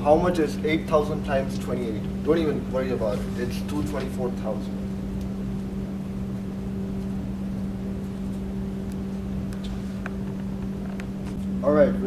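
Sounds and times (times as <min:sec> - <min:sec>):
low droning room hum: 0:00.0 - 0:12.0.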